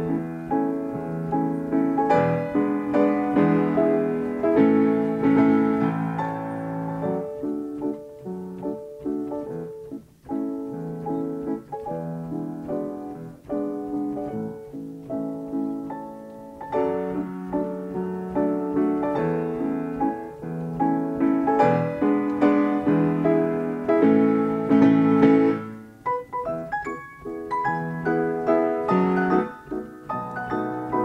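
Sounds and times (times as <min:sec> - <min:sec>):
player piano playing lively piece: 0:00.0 - 0:31.0.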